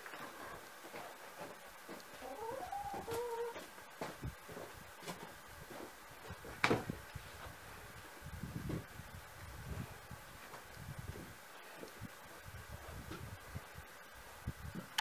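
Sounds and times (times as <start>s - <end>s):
light knocks and footsteps: 0.0s - 2.2s, 2.9s - 7.6s
wavering animal call: 2.2s - 3.6s
log thudding on sawhorse: 6.5s - 6.9s.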